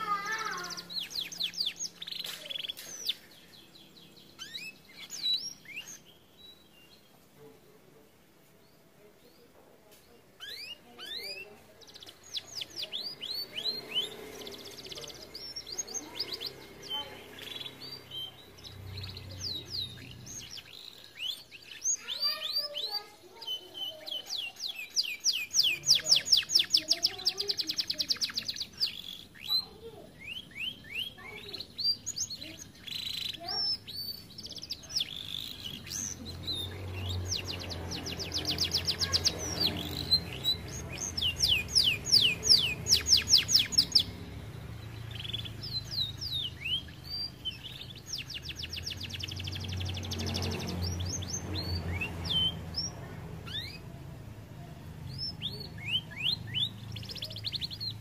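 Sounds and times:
canary chirping and singing: 0.0 - 7.5, 10.3 - 58.0
canary fast trills: 10.4 - 54.2.

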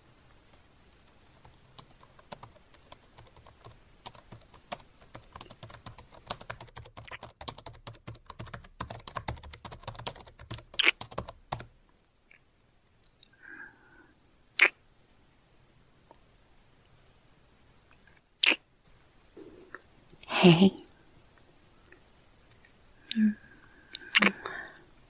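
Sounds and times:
computer keyboard typing: 0.4 - 11.7.

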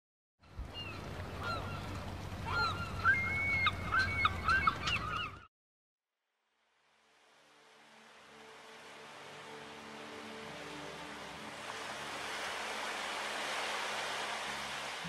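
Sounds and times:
birds calling: 0.6 - 5.5.

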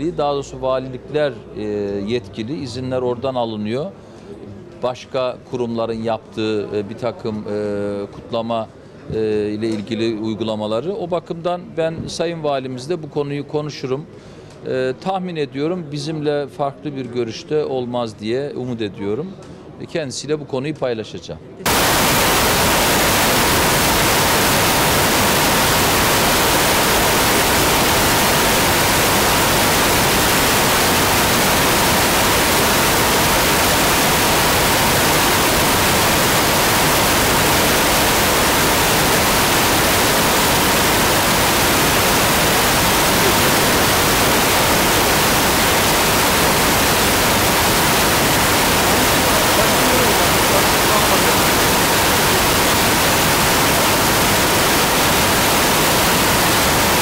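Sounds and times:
loud static hiss: 21.6 - 57.0.

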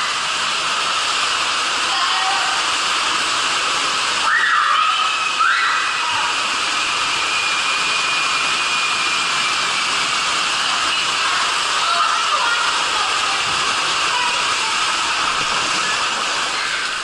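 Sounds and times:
water rushing down waterslide tube: 0.0 - 17.0.

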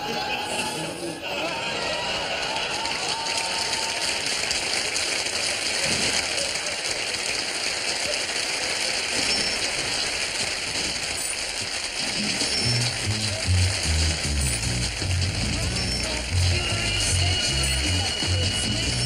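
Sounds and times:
audience applauding: 0.0 - 19.0
theme music: 12.1 - 19.0.

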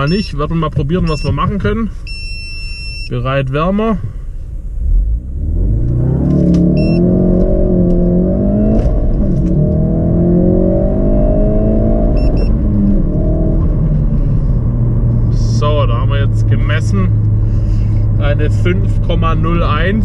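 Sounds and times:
car engine revving at full throttle: 4.7 - 20.0.

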